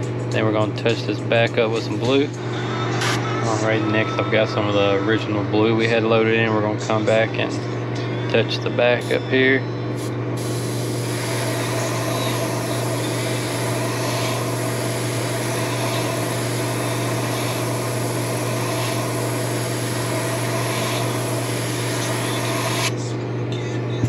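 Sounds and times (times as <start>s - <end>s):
airbrush spraying hiss: 10.0s - 22.9s.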